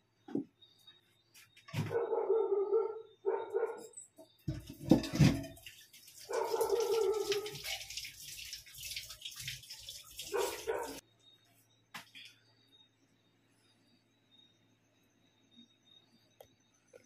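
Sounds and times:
dog barking: 1.8 - 3.9, 6.3 - 7.6, 10.3 - 11.0.

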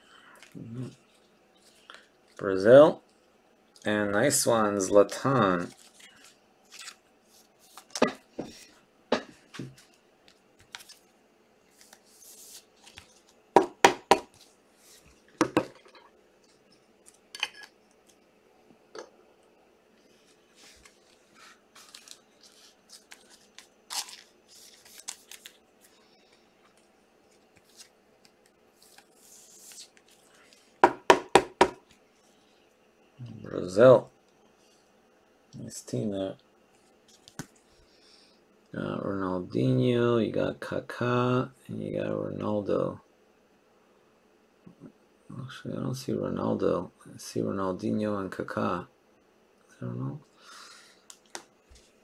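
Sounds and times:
wrapper rustling: 20.2 - 30.8.

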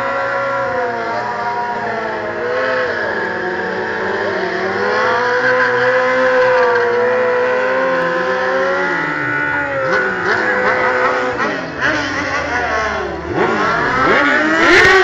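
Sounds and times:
motorcycle engine at high revs: 0.0 - 15.0.

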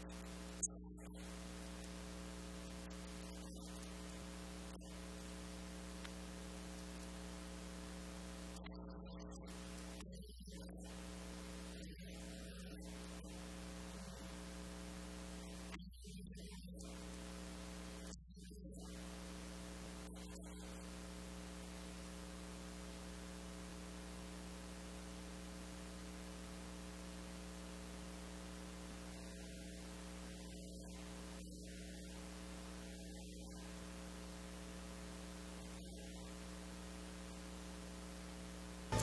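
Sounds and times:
faint electrical hum with hiss: 0.0 - 18.2, 18.8 - 39.0.

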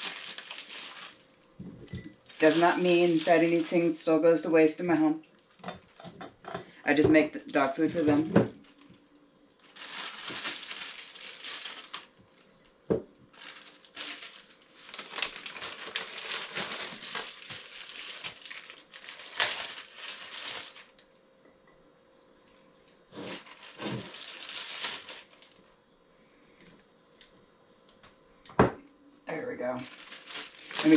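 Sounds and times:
plastic bag crinkling: 0.0 - 4.4, 7.5 - 21.2, 23.1 - 25.8, 29.6 - 30.9.

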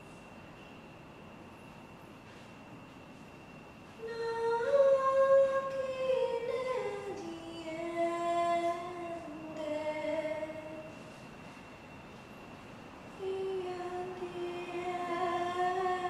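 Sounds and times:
woman singing wordless melody: 4.0 - 11.0, 13.2 - 16.0.

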